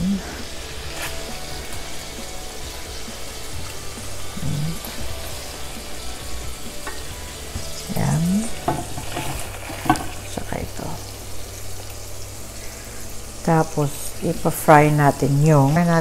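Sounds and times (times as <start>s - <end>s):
meat sizzling in a frying pan: 0.0s - 16.0s
metal tongs scraping a pan: 0.4s - 2.0s, 2.6s - 11.0s.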